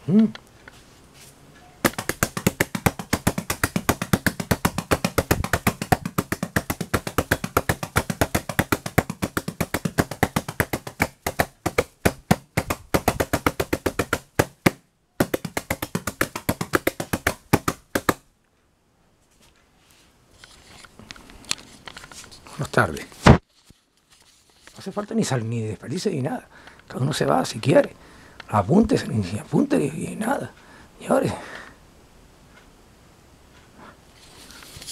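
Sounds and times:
drum brushes tapping: 1.8s - 18.2s.

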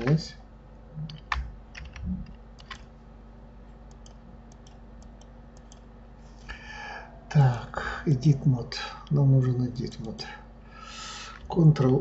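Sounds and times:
faint steady hum: 0.0s - 12.0s
mouse and keyboard clicks: 3.9s - 5.8s.

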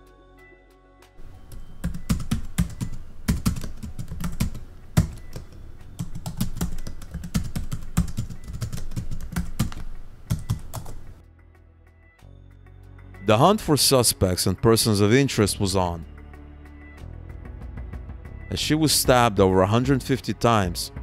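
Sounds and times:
keyboard typing: 1.2s - 11.2s.

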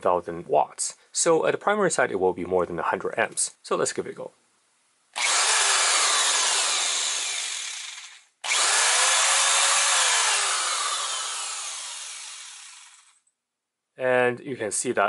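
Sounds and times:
electric drill running: 5.2s - 13.2s.

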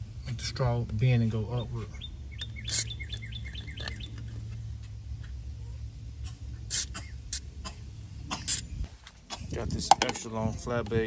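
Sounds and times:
aerosol can spraying in hissing spurts: 2.7s - 3.0s, 6.7s - 7.5s.

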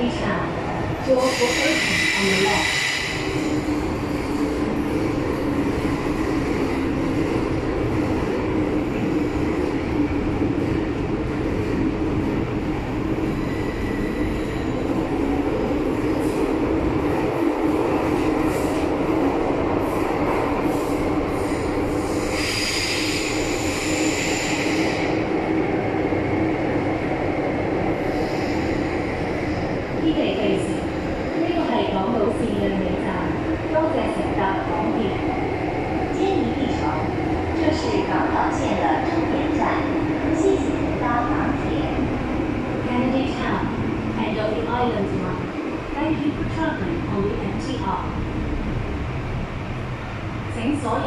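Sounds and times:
metro train rumble and hum: 0.0s - 51.0s.

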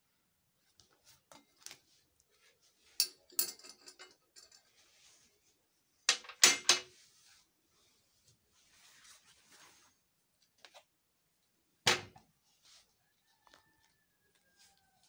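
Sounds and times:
objects clinking on glass table: 3.0s - 4.6s.

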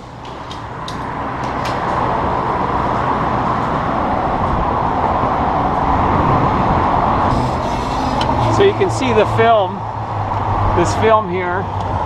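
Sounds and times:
street traffic rushing: 0.0s - 12.0s.

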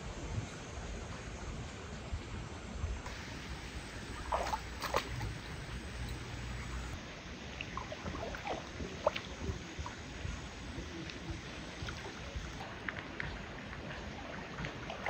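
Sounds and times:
small water splashes: 3.0s - 15.0s
dog wading through water: 3.9s - 7.0s, 7.6s - 15.0s.

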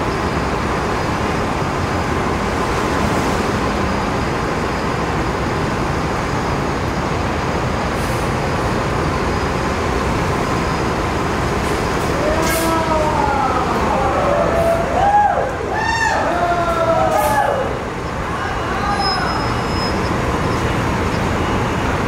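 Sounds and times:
bus and trucks passing: 0.0s - 22.0s
street traffic noise: 0.0s - 22.0s.

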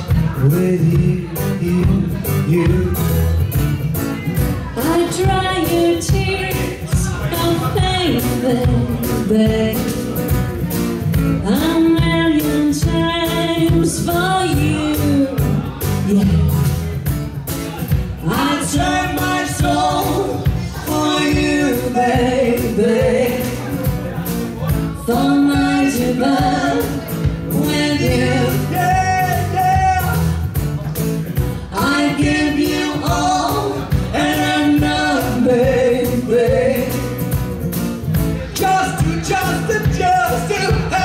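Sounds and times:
acoustic guitar: 0.0s - 41.0s
steady drum beat: 0.0s - 41.0s
woman singing: 4.7s - 10.3s, 11.3s - 16.6s, 18.2s - 23.8s, 25.0s - 30.1s, 31.6s - 37.2s.

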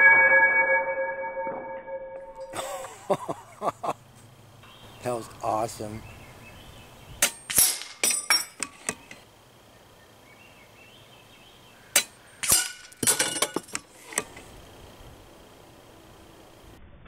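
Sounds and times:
pellet pinging on steel target: 7.2s - 9.1s, 12.0s - 13.8s
steel targets clattering down: 7.2s - 9.2s, 12.0s - 14.4s.

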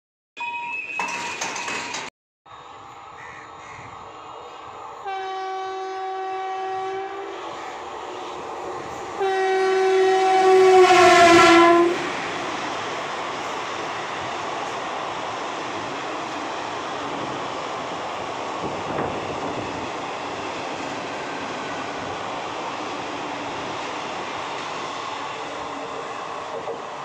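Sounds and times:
train rumble: 1.1s - 27.0s
locomotive horn blasts: 5.0s - 7.3s, 9.1s - 12.1s.

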